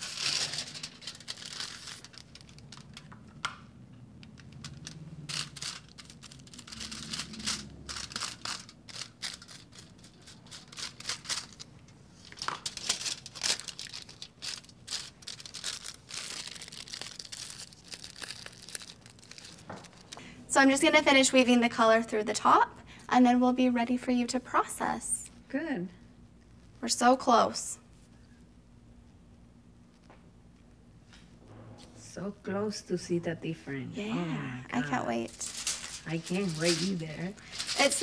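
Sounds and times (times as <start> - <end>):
aluminium foil crinkling: 0.0 - 3.4, 4.2 - 20.2, 34.8 - 38.0.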